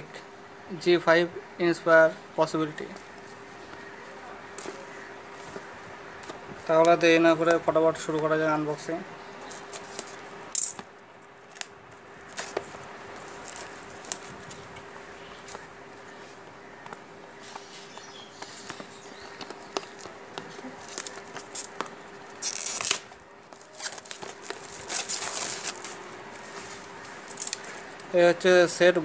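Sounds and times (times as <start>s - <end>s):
plastic wrap crinkling and tearing: 13.2s - 14.6s, 20.6s - 21.7s, 22.3s - 27.8s.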